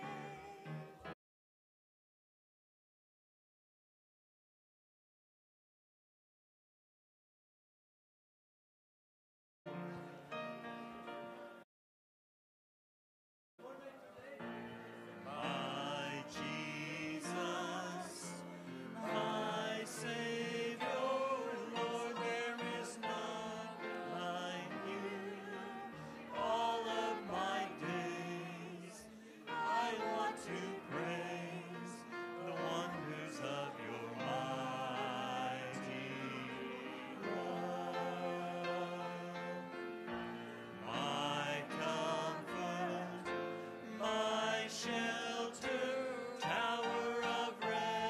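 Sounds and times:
classical singing with vibrato: 0.0s - 1.0s, 13.8s - 48.0s.

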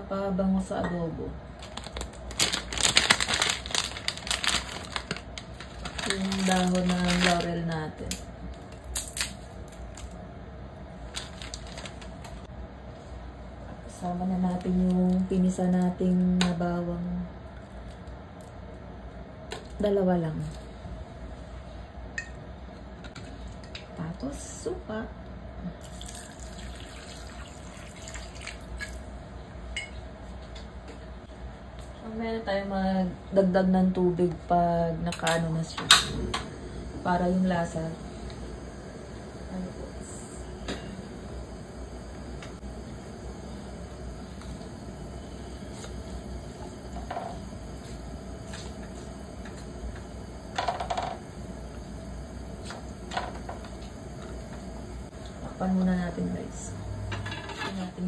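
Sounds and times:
vinegar trickling into a pan: 25.8s - 29.0s.

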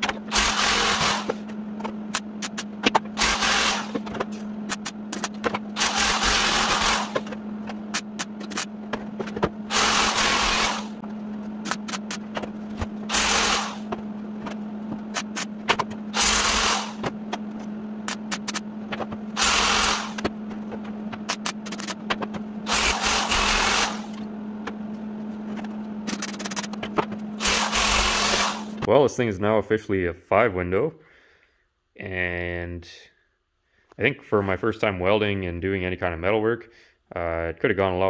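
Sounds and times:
welder spitting: 0.0s - 1.4s, 3.2s - 4.0s, 5.8s - 7.3s, 9.7s - 11.0s, 13.1s - 13.9s, 16.1s - 17.1s, 19.4s - 20.3s, 22.6s - 24.2s, 27.4s - 28.9s
low hum: 0.0s - 29.5s.

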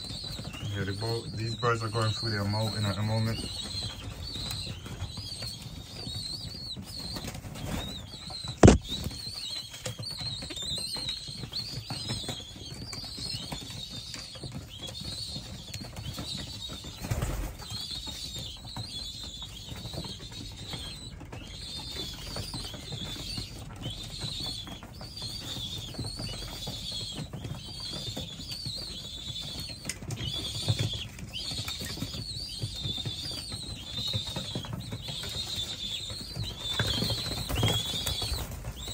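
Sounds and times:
pigeons moving about: 0.0s - 38.9s
wings flapping: 0.1s - 10.6s, 19.6s - 38.9s
dull thump: 8.6s - 8.9s
sharp knock: 8.6s - 8.9s.

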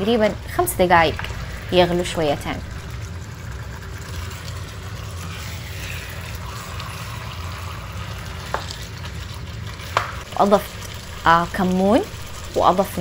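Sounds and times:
low steady rumble: 0.0s - 13.0s
meat frying in bubbling sauce: 0.2s - 13.0s.

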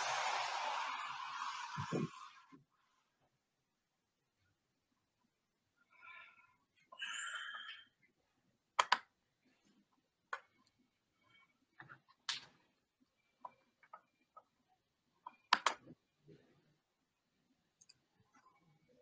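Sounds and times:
faint clicks and taps: 11.7s - 16.0s.

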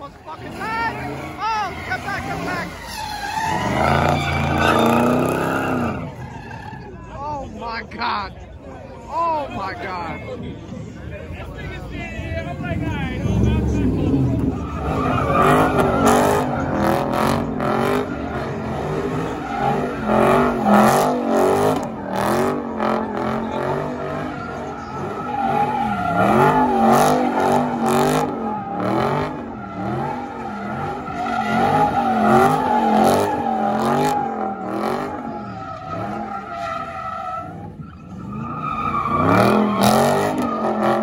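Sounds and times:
tyres squealing: 0.4s - 7.1s, 14.2s - 41.0s
car engine at high revs: 12.6s - 41.0s.

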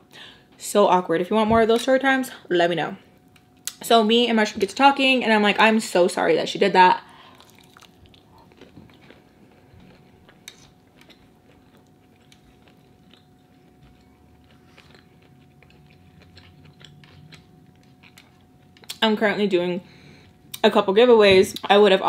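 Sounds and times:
faint steady hum: 0.0s - 22.0s
person chewing food: 7.2s - 19.0s.

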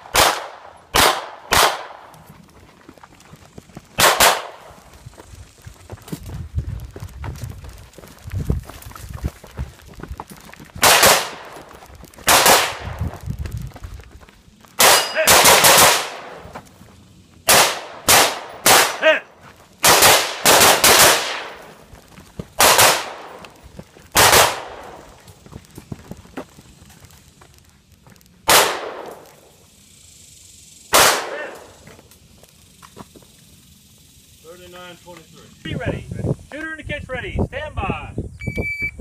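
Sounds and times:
pistol shots: 0.0s - 2.1s, 4.0s - 4.6s, 10.8s - 11.5s, 12.3s - 12.9s, 14.8s - 16.4s, 17.5s - 19.1s, 19.8s - 21.7s, 22.6s - 23.4s, 24.2s - 25.0s, 28.5s - 29.2s, 30.9s - 31.7s.

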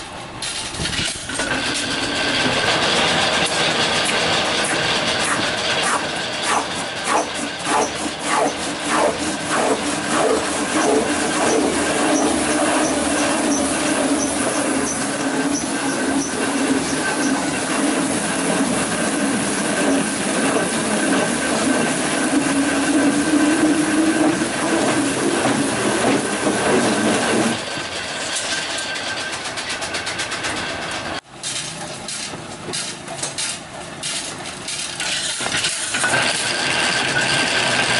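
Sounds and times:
lathe knocking: 1.2s - 31.2s
lathe running hum and hiss: 1.3s - 31.2s.

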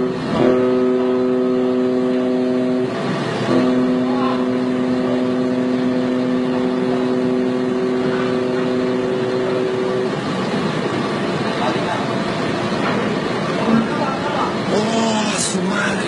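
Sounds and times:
ship's horn blasts: 0.0s - 11.4s, 12.1s - 16.0s.

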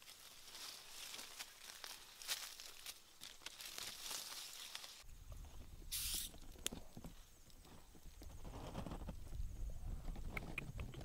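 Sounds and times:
leaves and twigs rustling: 0.0s - 9.5s
brief hiss: 5.9s - 6.4s.

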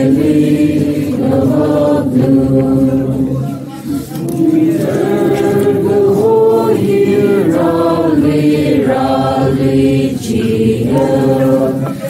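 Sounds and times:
choir singing: 0.0s - 12.0s.

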